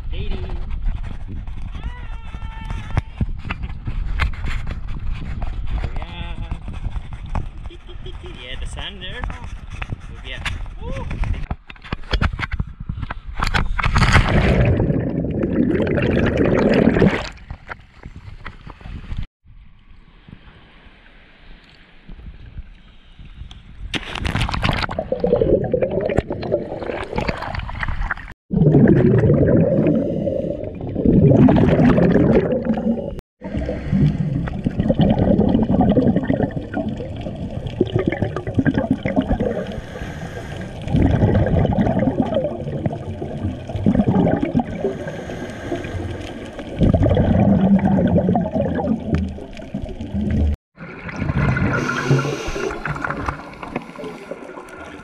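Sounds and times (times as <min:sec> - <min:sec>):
underwater bubbles gurgling: 0:14.0 - 0:17.4, 0:24.6 - 0:55.0.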